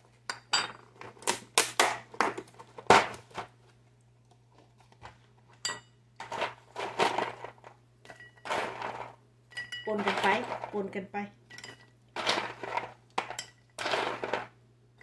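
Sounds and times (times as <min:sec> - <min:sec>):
nuts shifting in tub: 0:06.2 - 0:07.7, 0:08.4 - 0:09.2, 0:09.9 - 0:10.9, 0:12.1 - 0:14.6.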